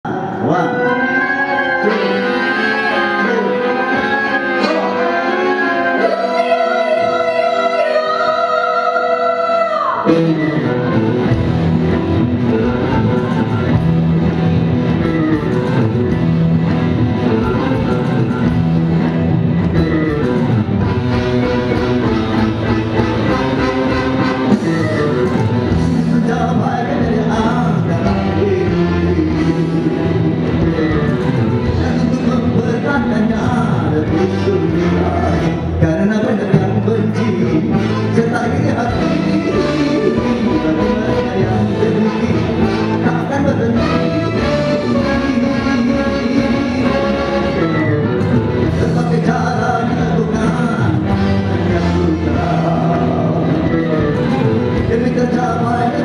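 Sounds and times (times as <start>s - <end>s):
man singing: 0.0s - 13.8s, 22.0s - 56.0s
saxophone: 0.1s - 32.5s, 36.7s - 56.0s
electric guitar: 0.1s - 56.0s
saxophone long notes: 0.2s - 14.0s, 17.2s - 25.9s
steady bass line: 10.0s - 56.0s.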